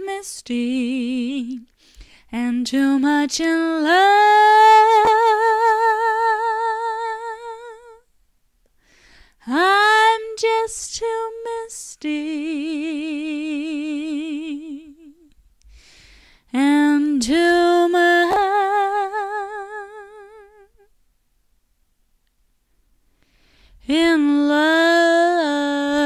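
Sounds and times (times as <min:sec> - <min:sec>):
woman singing with vibrato: 0:00.0 - 0:01.7, 0:02.3 - 0:08.1, 0:09.4 - 0:15.3, 0:16.5 - 0:20.9, 0:23.8 - 0:26.0.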